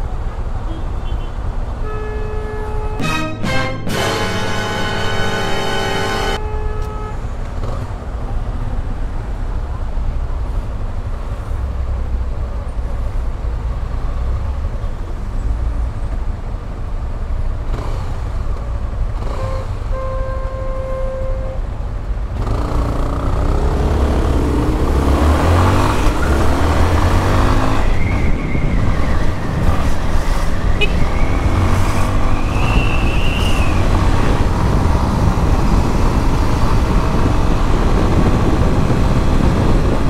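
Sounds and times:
motorcycle horn: 0.7s - 7.3s, 19.2s - 21.6s, 30.8s - 31.0s
wind rushing: 23.6s - 40.0s.

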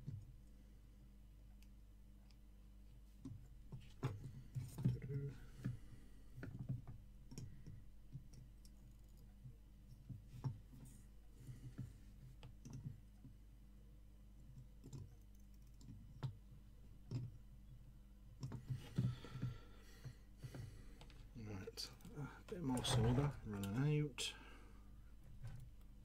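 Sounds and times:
low steady hum: 0.0s - 26.0s
small clicks and taps: 6.4s - 10.9s, 14.4s - 17.8s, 18.4s - 19.5s.

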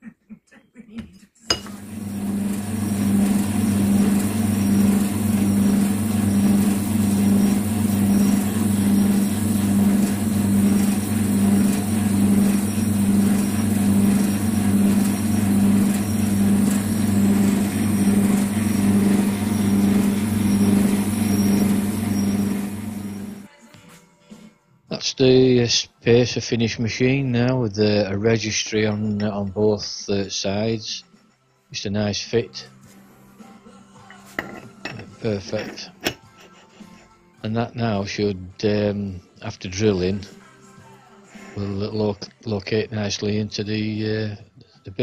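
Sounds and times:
metal lathe humming: 1.5s - 23.5s
hiss of lathe cutting: 1.6s - 23.5s.

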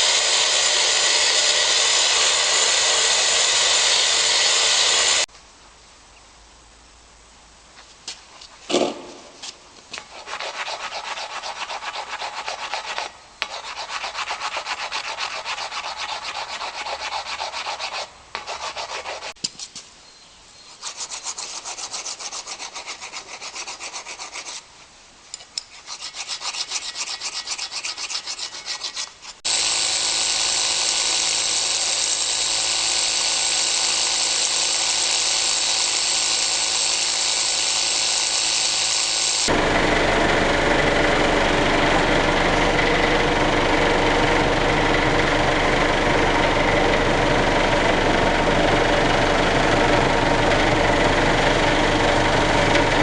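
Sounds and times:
rotary hammer drill boring into marble: 0.0s - 5.3s, 26.2s - 39.6s
rasp scraping stone: 10.0s - 19.4s, 20.7s - 24.6s, 25.5s - 29.6s.

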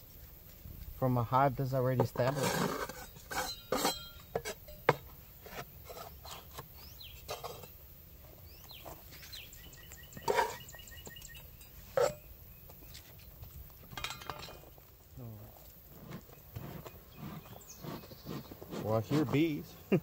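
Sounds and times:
birds chirping: 3.0s - 14.6s, 15.2s - 20.0s
beekeeping suit rustling: 8.2s - 14.0s.

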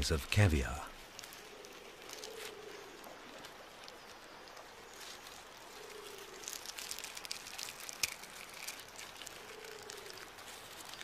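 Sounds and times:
crab shell crackling and clicking: 0.9s - 11.0s.

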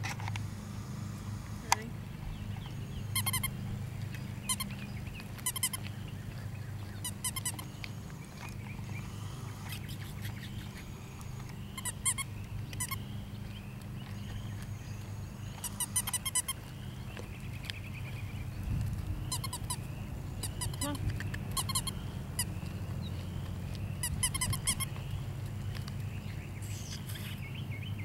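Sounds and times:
steady low hum: 0.0s - 28.0s
high-pitched animal calls: 2.6s - 3.8s, 4.4s - 6.0s, 7.0s - 13.1s, 14.4s - 16.7s, 19.2s - 25.0s, 26.6s - 27.4s.

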